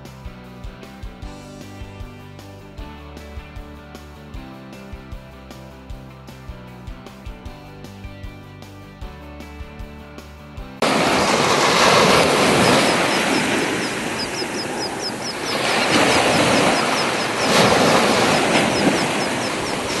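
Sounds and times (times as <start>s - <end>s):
rushing water of boat wake: 10.8s - 20.0s
rapid high chirps: 11.2s - 20.0s.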